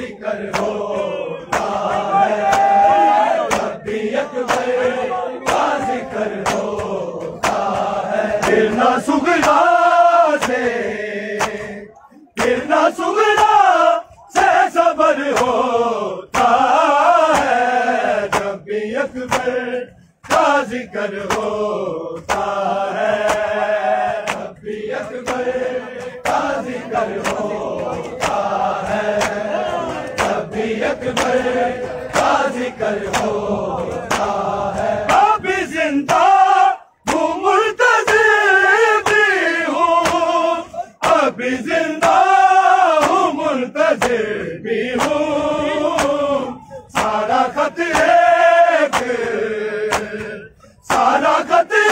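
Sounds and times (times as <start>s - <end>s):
men chanting in unison: 0.0s - 51.9s
hands slapping chests: 0.4s - 0.8s, 1.5s - 2.8s, 3.4s - 3.8s, 4.4s - 9.7s, 10.4s - 10.7s, 11.4s - 11.8s, 18.2s - 18.6s, 20.2s - 21.6s, 22.2s - 24.6s, 25.2s - 35.3s, 38.0s - 38.3s, 40.0s - 40.4s, 42.0s - 44.2s, 45.0s - 45.3s, 45.9s - 46.2s, 46.9s - 49.2s, 49.9s - 51.2s.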